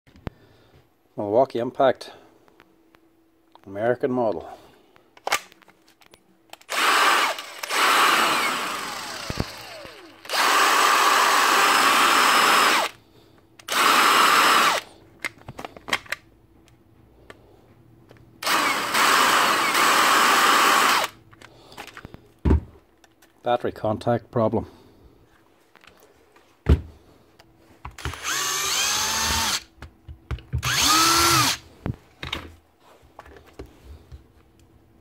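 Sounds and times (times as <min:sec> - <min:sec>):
impact driver motor spinning: 0:06.6 - 0:13.0, 0:13.7 - 0:14.8, 0:18.4 - 0:21.2, 0:28.0 - 0:29.7, 0:30.6 - 0:31.6.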